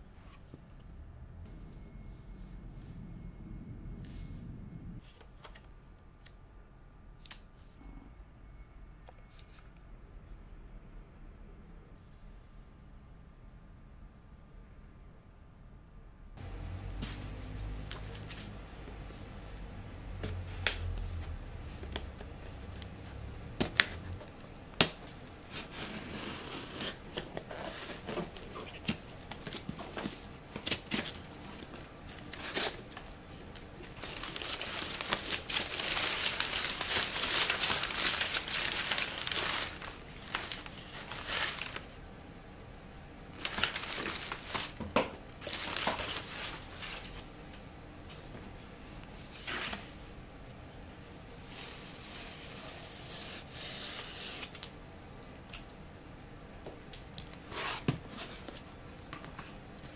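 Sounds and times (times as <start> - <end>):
packing paper crinkling: 25.6 - 42.0, 43.3 - 44.8, 45.4 - 47.2
packing tape tearing: 33.5 - 41.9.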